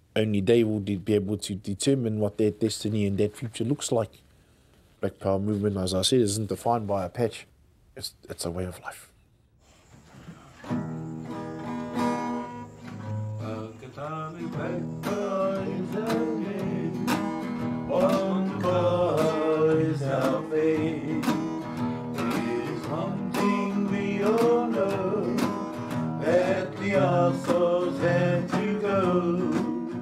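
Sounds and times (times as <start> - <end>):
acoustic guitar strumming: 10.6 - 30.0
man singing: 13.3 - 25.6, 26.2 - 30.0.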